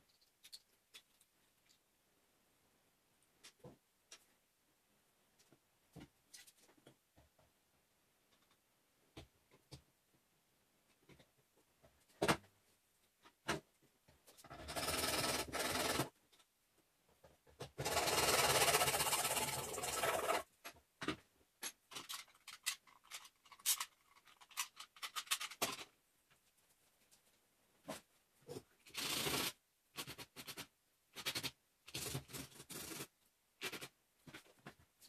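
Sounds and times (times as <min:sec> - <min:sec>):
hacksaw cutting plastic: 0:17.8 - 0:20.4.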